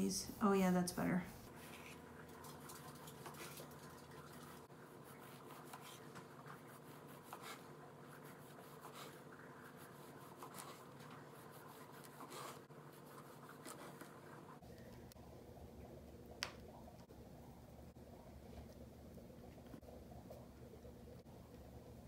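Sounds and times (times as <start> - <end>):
serrated knife sawing dough: 5.0 - 14.2.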